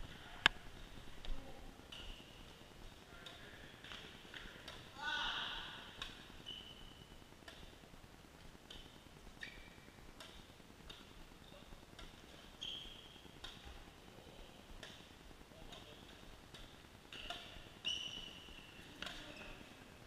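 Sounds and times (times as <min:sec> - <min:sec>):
sports shoes squeaking on floor: 0:06.4 - 0:07.1, 0:09.4 - 0:09.9, 0:12.5 - 0:13.3, 0:17.2 - 0:19.7.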